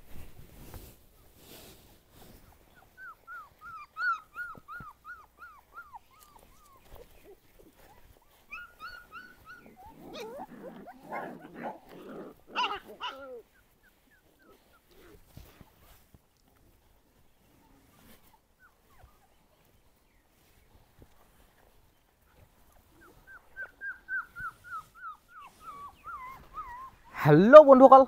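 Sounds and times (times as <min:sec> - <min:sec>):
puppies whimpering: 0:02.6 - 0:16.0, 0:17.5 - 0:19.8, 0:22.7 - 0:28.0
puppies growling: 0:02.8 - 0:15.6
puppy yelp: 0:03.0 - 0:13.6, 0:23.0 - 0:27.3.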